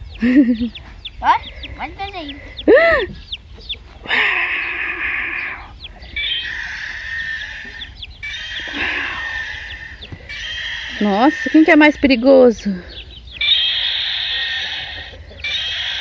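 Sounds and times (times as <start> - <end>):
toy dinosaur electronic roars: 4.1 - 7.6, 8.3 - 11.0, 13.4 - 16.0.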